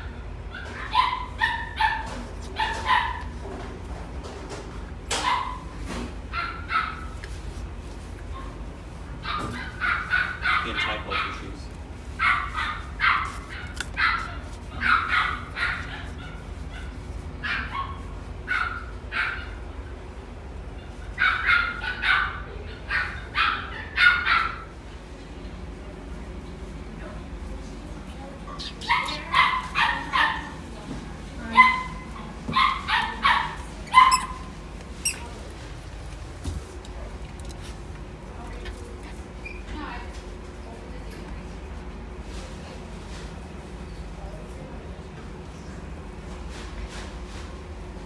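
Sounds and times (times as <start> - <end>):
puppy yipping: 0.5 - 3.3, 5.1 - 5.7, 9.2 - 11.4, 12.2 - 19.6, 21.2 - 24.6, 28.6 - 30.6, 31.5 - 35.3.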